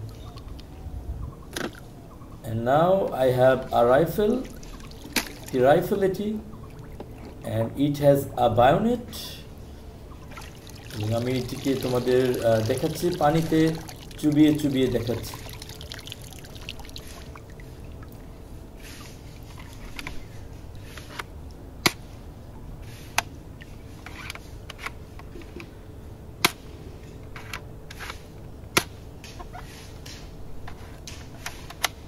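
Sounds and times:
water splashing and trickling: 3.7s - 5.9s, 6.5s - 7.5s, 10.1s - 20.8s.

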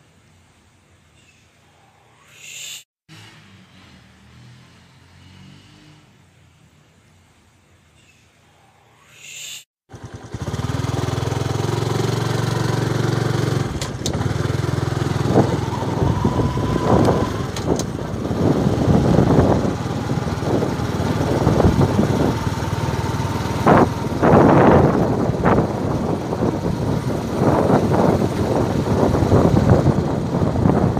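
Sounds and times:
small motorbike engine running: 9.9s - 30.9s
wind buffeting microphone: 14.2s - 30.9s.

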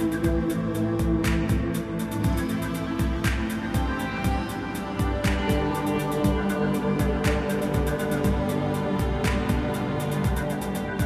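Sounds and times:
music with steady drum beat: 0.0s - 11.0s.

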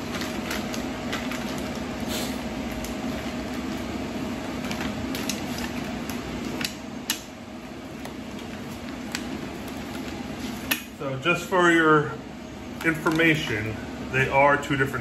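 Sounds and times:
plastic bag crinkling: 0.0s - 3.8s
steady low hum: 0.0s - 15.0s.

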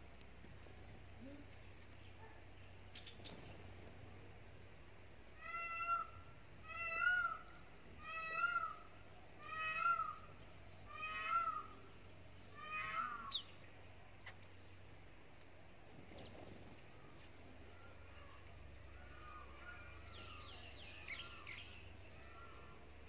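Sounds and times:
peacock calling: 5.3s - 13.6s.

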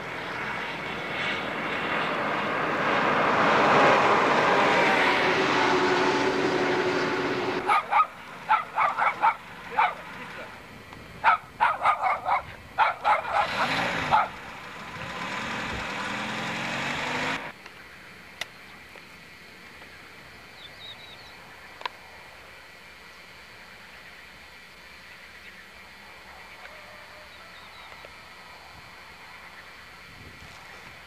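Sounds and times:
vehicle passing close: 0.0s - 10.6s, 11.7s - 17.6s
small dog yapping: 7.6s - 10.1s, 11.2s - 14.4s.

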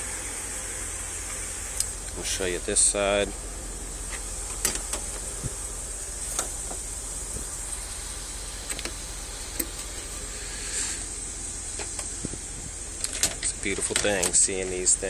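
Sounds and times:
steady low hum: 0.0s - 15.0s
car door handle and latch clicks: 4.5s - 5.2s, 13.0s - 14.4s.

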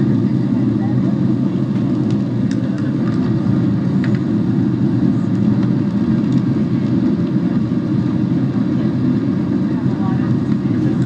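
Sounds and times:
jet engine cabin rumble: 0.0s - 11.0s.

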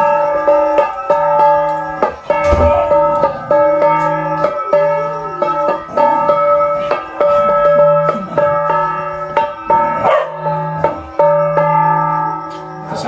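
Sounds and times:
metal gong struck: 2.3s - 5.6s.

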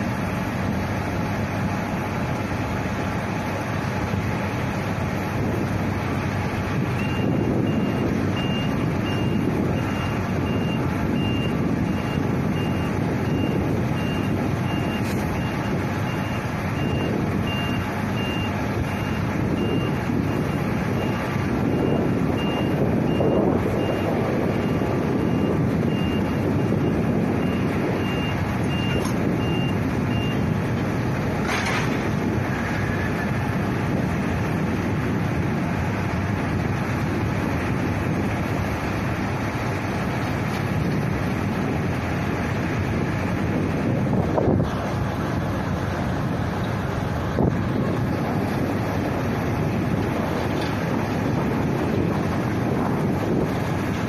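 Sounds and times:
aircraft and machinery rumble: 0.0s - 54.0s
reversing alarm beeping: 6.8s - 30.6s.

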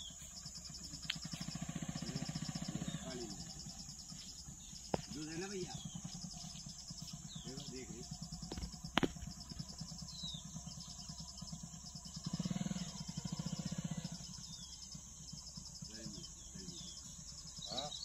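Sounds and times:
birds chirping: 0.0s - 18.0s
insects buzzing: 0.0s - 18.0s
low rhythmic throb: 0.0s - 18.0s.

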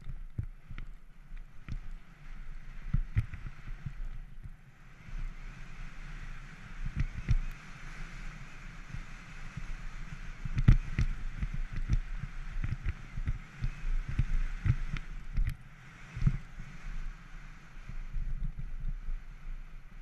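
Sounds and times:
bike thumping and rattling over bumps: 0.0s - 4.7s, 6.4s - 16.8s
bike tyres rolling on gravel: 0.0s - 20.0s.

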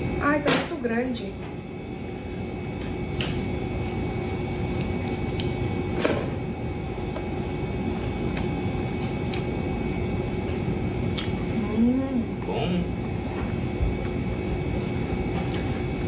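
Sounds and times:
background hum: 0.0s - 16.0s.

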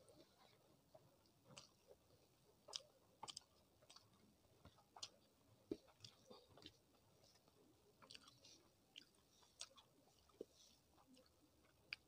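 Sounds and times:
soft chewing: 0.0s - 12.0s.

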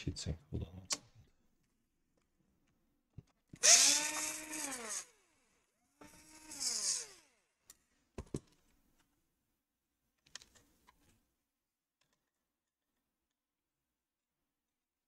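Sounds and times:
electric screwdriver motor whine: 3.6s - 5.4s, 6.0s - 7.5s.

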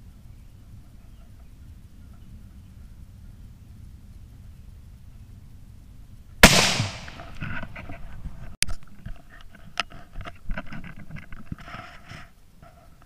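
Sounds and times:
rifle shot: 6.4s - 7.4s.

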